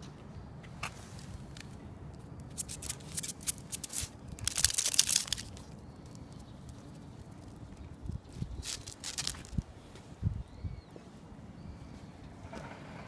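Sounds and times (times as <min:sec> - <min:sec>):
crinkling rustling noise: 0:00.7 - 0:10.2
quick clicks: 0:02.5 - 0:05.6.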